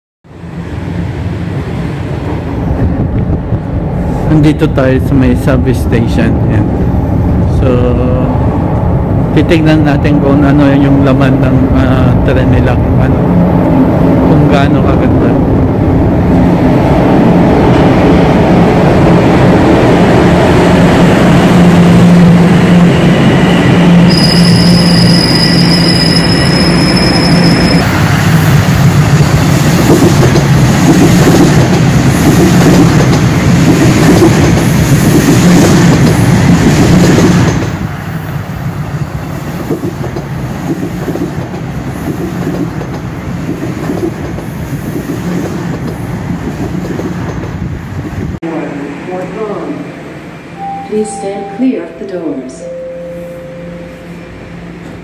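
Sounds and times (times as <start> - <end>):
train wheels rumbling on rail: 0.3 - 50.5
high wheel squeal: 23.2 - 28.2.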